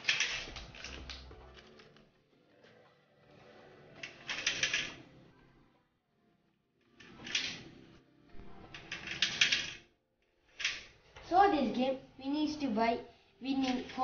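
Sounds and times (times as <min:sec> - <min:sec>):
plastic discs rattling down grid: 0:00.0 - 0:01.3, 0:04.0 - 0:05.0, 0:07.0 - 0:07.7, 0:08.7 - 0:09.8, 0:13.5 - 0:14.0.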